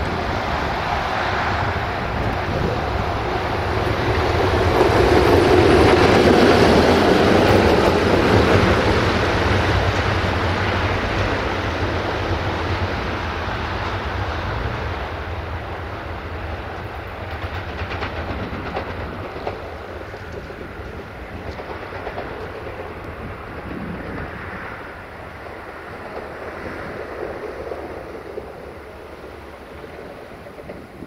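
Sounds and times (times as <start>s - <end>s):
train passing on rails: 0.0s - 31.0s.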